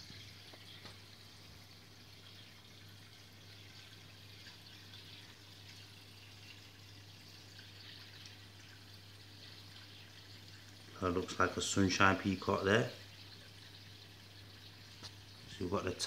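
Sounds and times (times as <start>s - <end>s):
water trickling: 0.0s - 16.0s.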